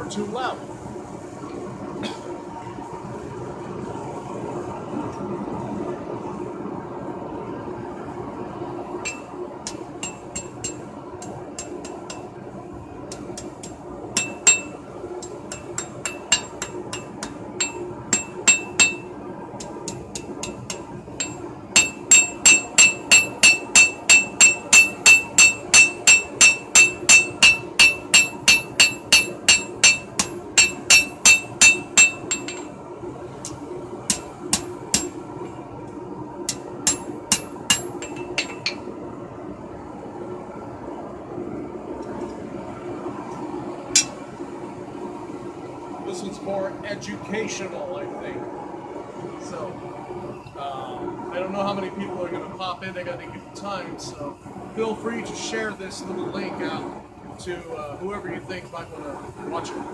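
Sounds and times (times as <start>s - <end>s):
hammer ringing on anvil: 9.1s - 12.3s, 13.1s - 19.1s, 19.9s - 32.7s, 36.8s - 38.8s, 44.0s - 44.2s.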